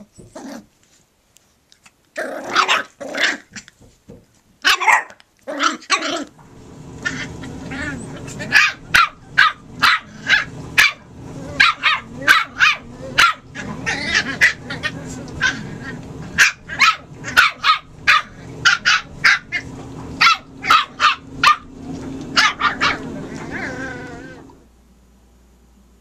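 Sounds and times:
puppies yapping: 0:06.9 - 0:24.6.

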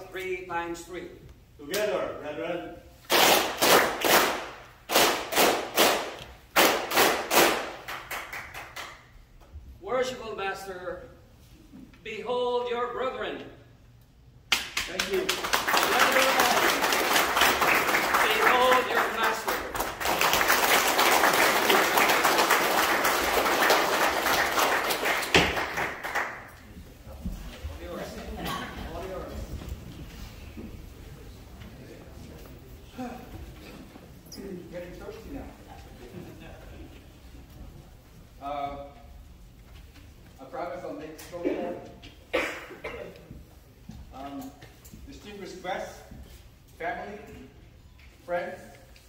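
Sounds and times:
scattered weak claps: 0:03.0 - 0:09.0, 0:14.5 - 0:26.6
group clapping in unison: 0:03.0 - 0:09.1, 0:14.5 - 0:26.8
crowd applauding: 0:14.6 - 0:26.7.

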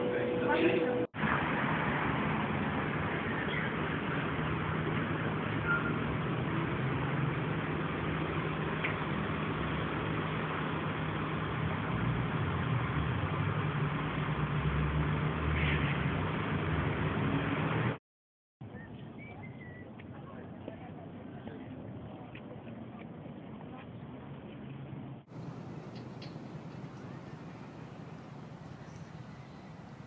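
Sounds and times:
engine drone: 0:25.3 - 0:30.0.

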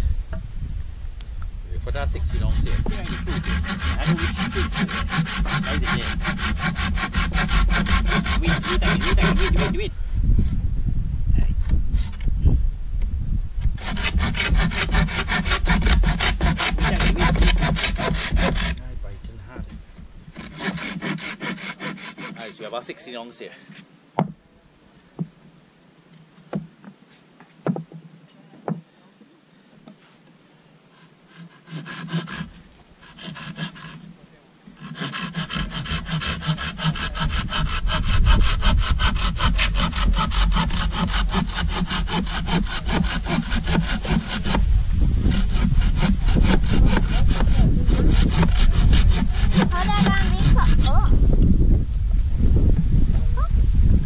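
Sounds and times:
hand saw cutting bamboo: 0:02.0 - 0:09.9, 0:13.8 - 0:18.9, 0:20.4 - 0:22.7, 0:31.0 - 0:34.1, 0:34.8 - 0:51.0.

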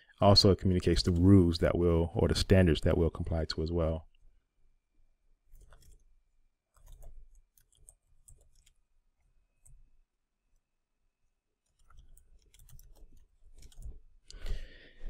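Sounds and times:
faint keyboard typing: 0:05.5 - 0:10.6, 0:11.2 - 0:14.8.

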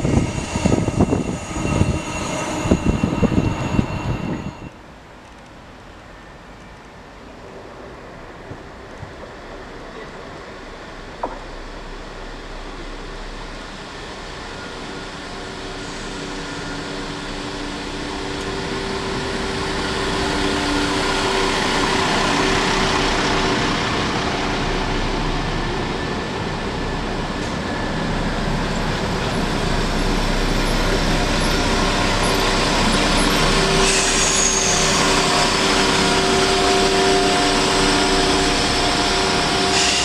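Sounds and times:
diesel train engines humming: 0:08.6 - 0:40.0.

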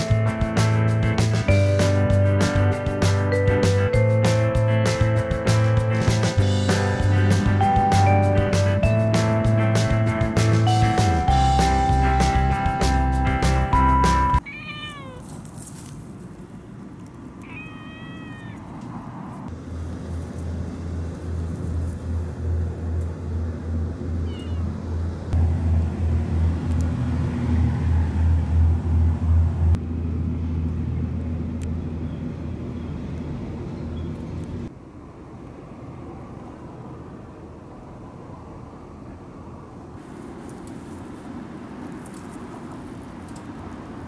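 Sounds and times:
cat meowing: 0:14.4 - 0:15.3, 0:17.4 - 0:18.7, 0:24.2 - 0:24.8
low throbbing rumble: 0:24.9 - 0:31.6.

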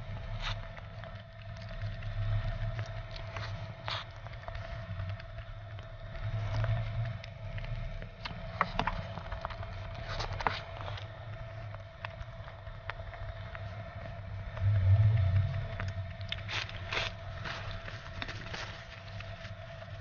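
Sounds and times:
faint steady hum: 0:00.0 - 0:20.0
person chewing: 0:15.7 - 0:19.6.

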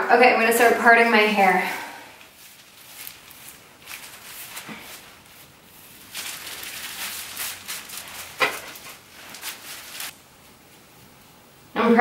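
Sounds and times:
disposable gloves crinkling: 0:02.2 - 0:10.2
hair rustling: 0:02.2 - 0:10.2.

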